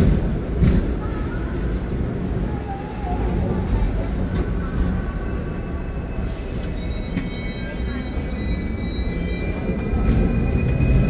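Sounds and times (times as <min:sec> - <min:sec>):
tram rumbling: 0:00.0 - 0:11.0
wheels squealing on rails: 0:04.4 - 0:11.0.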